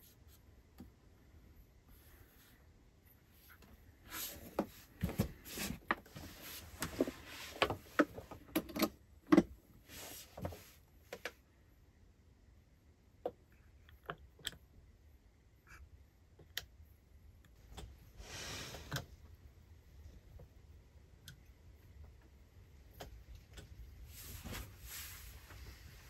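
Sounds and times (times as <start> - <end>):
soft rustle: 0.0 - 8.4, 9.8 - 11.2, 23.9 - 26.0.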